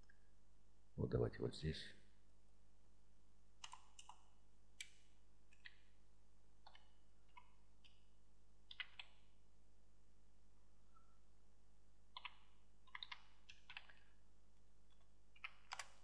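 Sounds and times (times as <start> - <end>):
computer keyboard keystrokes: 3.6 - 4.2, 8.7 - 9.2, 12.2 - 14.1, 15.4 - 16.0.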